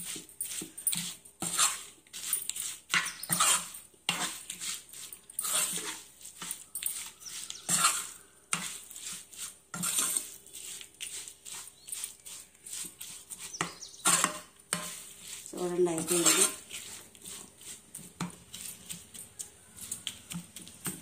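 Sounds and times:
metal spoon scraping a pan: 0.0s - 21.0s.

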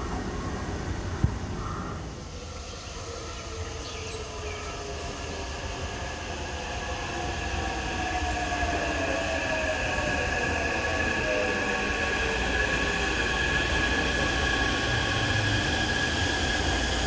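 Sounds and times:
electric train rumble: 0.0s - 17.0s.

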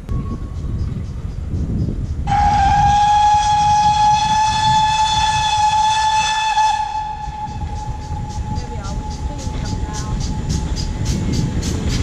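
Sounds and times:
steam whistle blast: 2.3s - 8.5s
low rumble: 6.7s - 12.0s.

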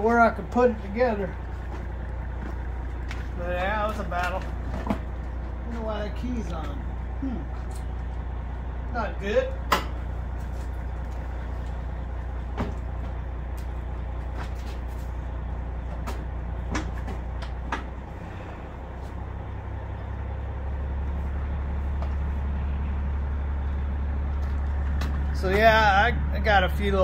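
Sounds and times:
truck engine idling: 0.0s - 27.0s
sharp clicks and knocks: 15.9s - 18.0s.

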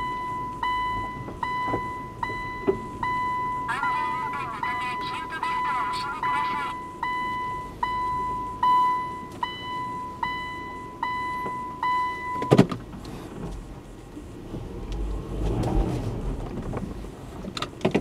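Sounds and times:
reverse warning beeps: 0.0s - 12.6s.

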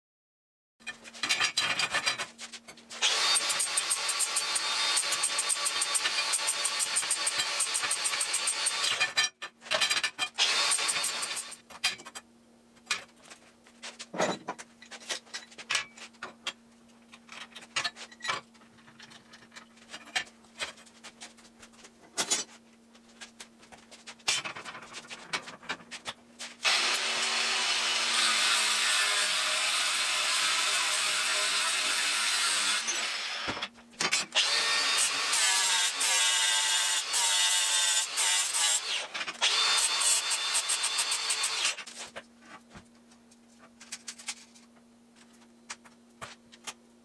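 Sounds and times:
angle grinder cutting steel: 3.0s - 9.0s, 10.4s - 11.6s, 26.6s - 33.6s, 34.4s - 41.8s.

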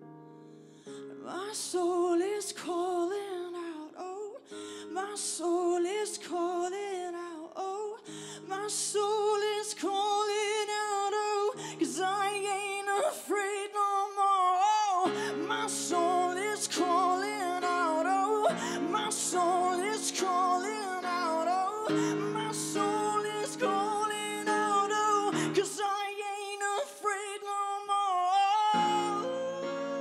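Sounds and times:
woman singing with vibrato: 5.0s - 30.0s
piano chords: 8.1s - 30.0s.

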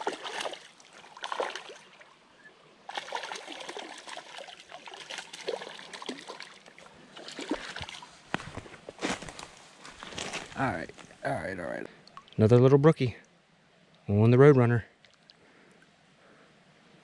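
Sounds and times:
fish splashing in water: 0.0s - 2.0s, 2.9s - 8.1s.

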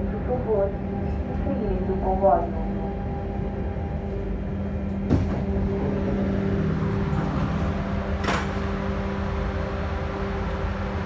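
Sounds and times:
train electric hum: 0.0s - 11.0s
train clunk: 4.9s - 6.0s, 7.0s - 8.9s.

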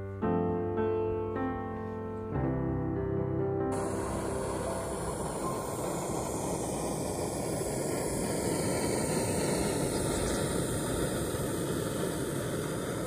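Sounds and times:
gas stove burner hissing: 3.8s - 13.0s.

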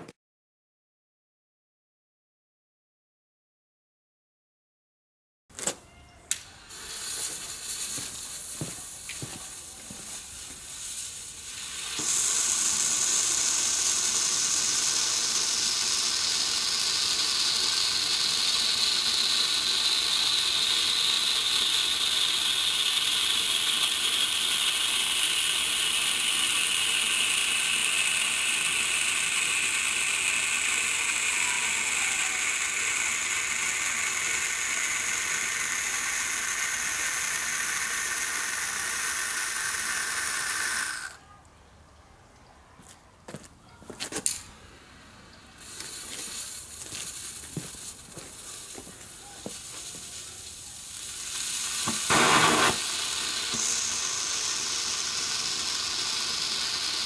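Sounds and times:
flare clicks and sputters: 6.3s - 41.2s, 45.5s - 57.0s
flare burning with a hiss: 6.6s - 41.2s, 44.2s - 57.0s.

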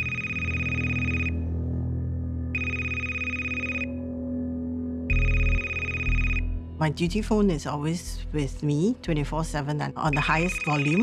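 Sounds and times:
phone ring tone: 0.0s - 1.4s, 2.6s - 4.0s, 5.1s - 6.5s, 10.1s - 11.0s
low steady drone: 0.0s - 10.9s.

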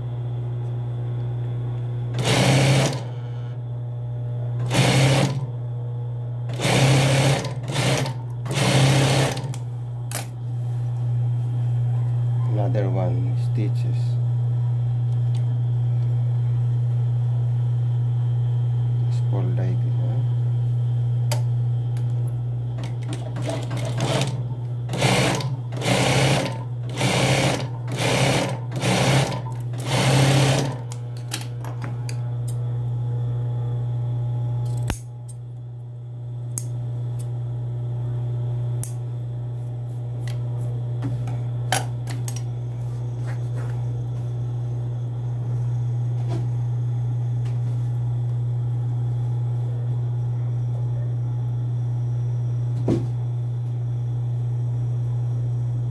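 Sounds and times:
motor hum: 0.0s - 55.9s
sewing machine stitching: 2.2s - 3.1s, 4.6s - 5.4s, 6.5s - 9.5s, 22.8s - 30.8s.

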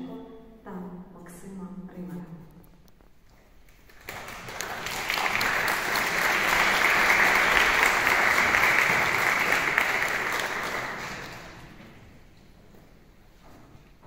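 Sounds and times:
audience applauding: 3.7s - 12.0s.

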